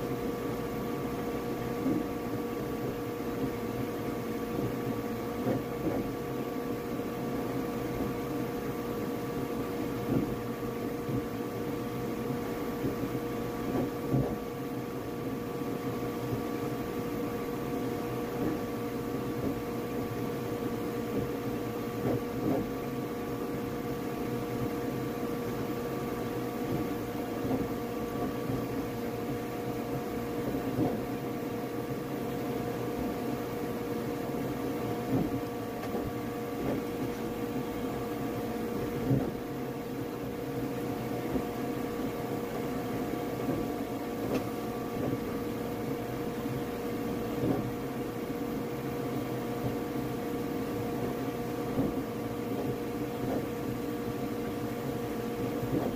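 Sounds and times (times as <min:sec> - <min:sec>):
printer fans and motors whirring: 0:00.0 - 0:55.9
print head ticks and bumps: 0:04.5 - 0:06.2, 0:10.0 - 0:10.4, 0:12.3 - 0:14.5, 0:22.0 - 0:22.8, 0:47.3 - 0:47.8.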